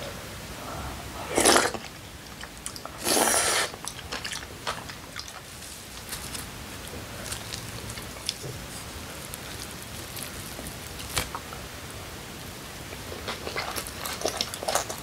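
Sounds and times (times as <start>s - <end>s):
person slurping stew: 0.6s - 1.9s, 2.7s - 3.8s
quiet chewing: 1.2s - 11.7s, 12.8s - 15.0s.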